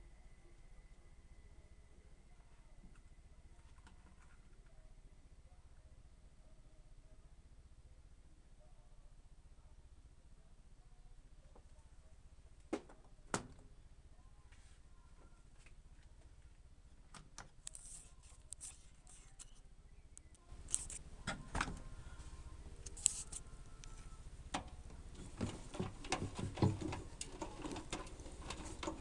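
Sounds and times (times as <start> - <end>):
washing machine motor hum: 23.4 - 29.0.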